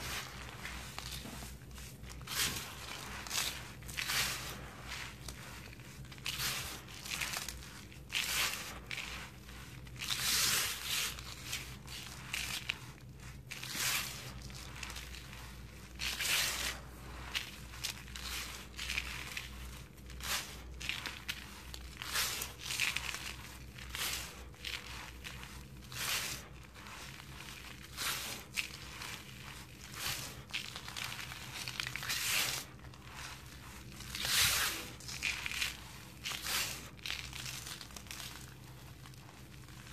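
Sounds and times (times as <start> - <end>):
hands crunching dry cement mix: 0.0 - 39.9.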